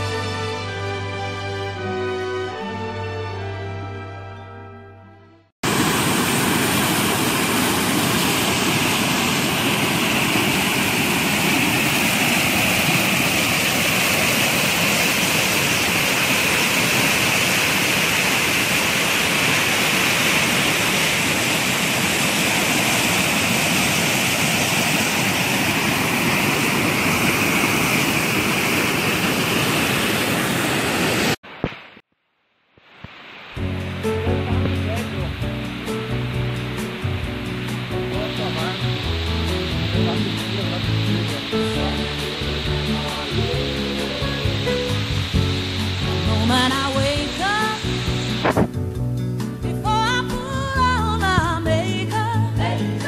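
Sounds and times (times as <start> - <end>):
waterfall rushing: 5.6 - 31.4, 32.9 - 48.8.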